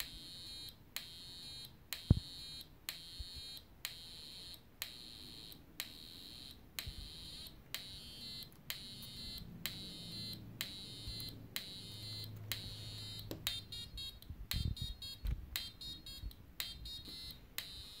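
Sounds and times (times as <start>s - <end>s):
buzzy square-wave sequencer tones: 5.0s - 18.0s.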